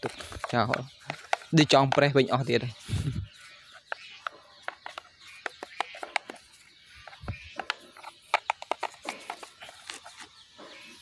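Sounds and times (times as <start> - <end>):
paintbrush tapping and clicking: 0.0 - 2.4, 3.8 - 10.0.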